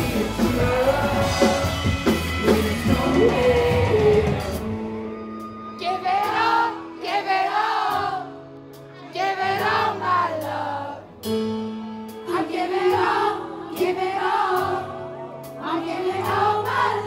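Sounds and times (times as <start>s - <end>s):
indie rock band playing: 0.0s - 7.3s
person singing: 0.0s - 7.9s.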